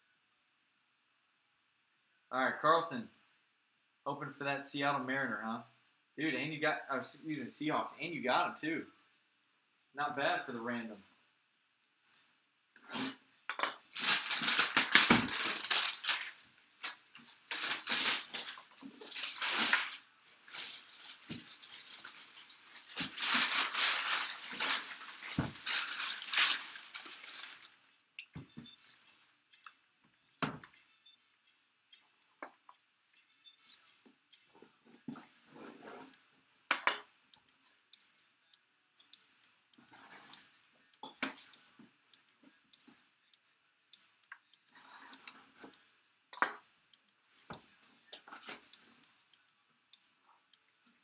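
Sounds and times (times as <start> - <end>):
plastic wrap crinkling and tearing: 13.9 - 27.8.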